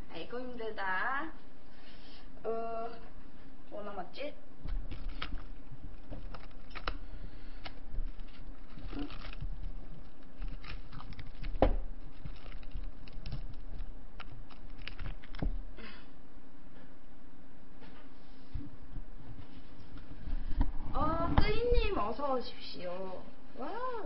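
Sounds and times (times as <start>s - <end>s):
plastic cling wrap crinkling: 4.7s - 15.6s.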